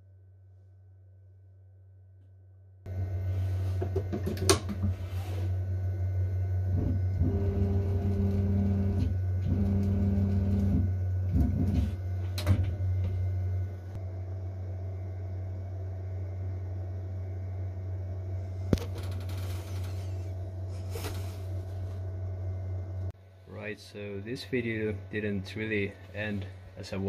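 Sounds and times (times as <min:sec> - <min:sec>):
stepper motor whine: 0:04.9 - 0:16.8
cnc router humming: 0:05.4 - 0:17.7.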